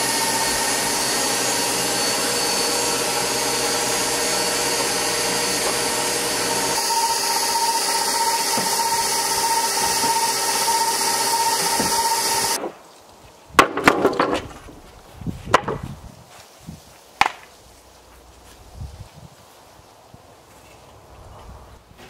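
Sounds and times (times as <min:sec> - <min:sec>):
immersion blender motor whining: 0:00.0 - 0:12.6
faint outdoor ambience: 0:12.6 - 0:22.0
wooden boards knocking: 0:13.6 - 0:14.7, 0:15.5 - 0:15.8
footsteps on grass: 0:14.7 - 0:20.8.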